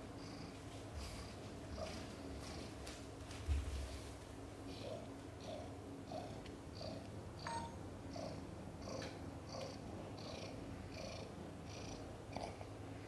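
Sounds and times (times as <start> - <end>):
cat purring: 4.7 - 12.6.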